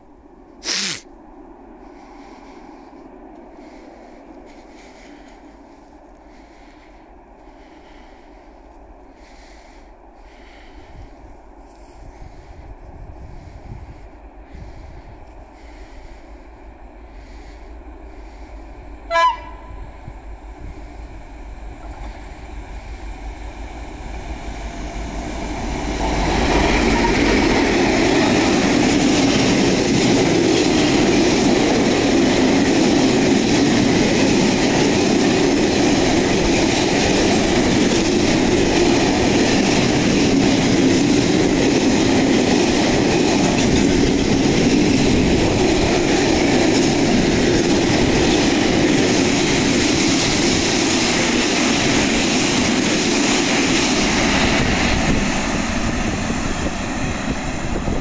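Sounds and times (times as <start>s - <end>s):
diesel locomotive engine: 0.0s - 58.0s
train wheels on rails: 0.0s - 58.0s
train horn blast: 19.1s - 20.1s.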